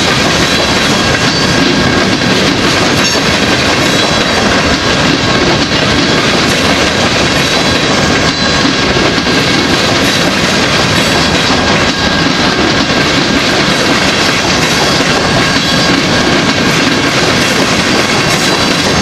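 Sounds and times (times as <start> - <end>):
train wheels clickety-clack: 0.0 - 19.0.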